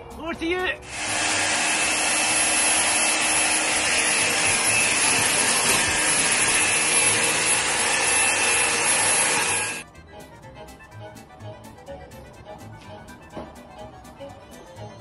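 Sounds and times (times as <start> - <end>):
vacuum cleaner running: 0.8 - 9.8.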